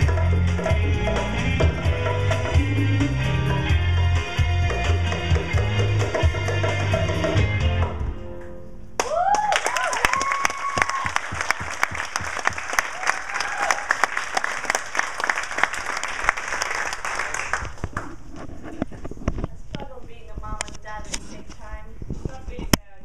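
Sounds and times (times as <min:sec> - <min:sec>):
cheering whoops: 0:09.0 - 0:14.4
audience applauding: 0:09.0 - 0:18.2.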